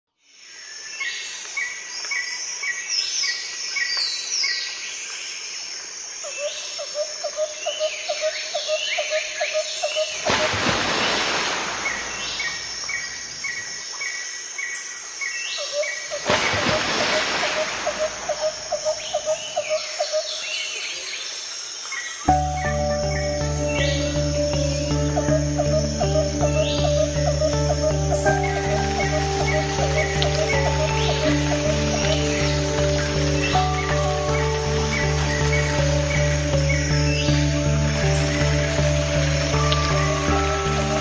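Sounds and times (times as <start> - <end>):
insect buzz: 5.0 - 20.6, 21.4 - 41.0
birds chirping and singing: 22.2 - 41.0.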